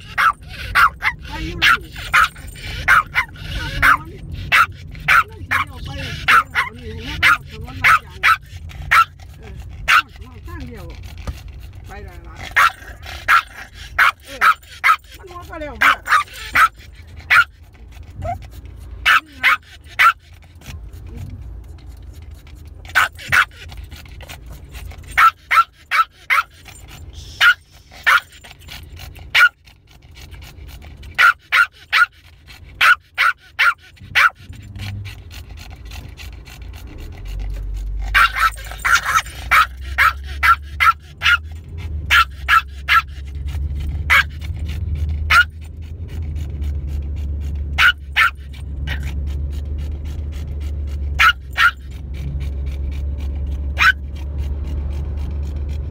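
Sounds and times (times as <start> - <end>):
dog barking and yapping: 0.0 - 10.3, 12.2 - 17.6, 18.2 - 18.4, 19.0 - 20.6, 22.9 - 23.8, 24.6 - 29.6, 31.0 - 35.0, 38.0 - 45.7, 47.6 - 49.3, 51.0 - 52.6, 53.6 - 54.4
car rumble: 0.0 - 55.9.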